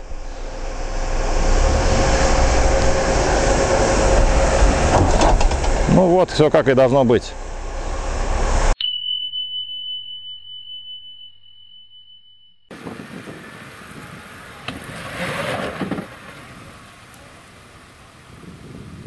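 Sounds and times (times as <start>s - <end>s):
wind on microphone: 0.0s - 5.9s, 12.7s - 15.1s, 18.2s - 19.0s
car engine running: 0.0s - 8.8s
bell-like ding: 8.8s - 12.7s.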